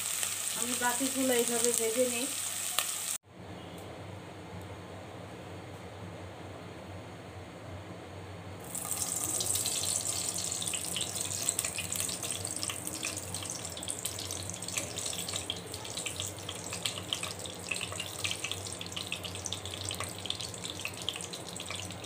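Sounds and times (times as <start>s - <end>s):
oil hissing and crackling in pot: 0.0s - 3.2s, 8.6s - 22.0s.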